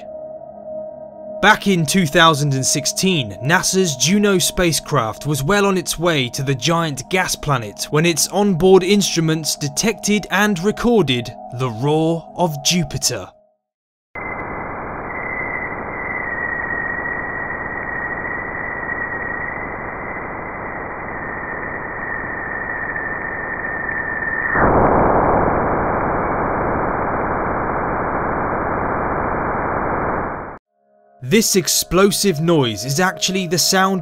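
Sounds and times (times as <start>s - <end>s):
hiss with high whistle: 14.4s - 25.4s.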